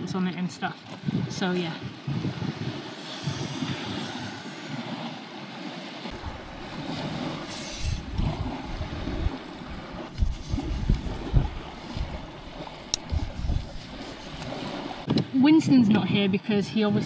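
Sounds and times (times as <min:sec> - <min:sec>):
wind buffeting microphone: 0:00.0 - 0:17.0
waves washing on rocky shore: 0:01.0 - 0:15.1.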